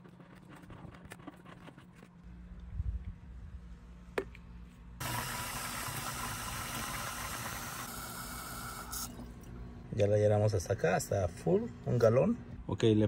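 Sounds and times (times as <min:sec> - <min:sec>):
water pouring into plastic tank: 0:05.0 - 0:07.9.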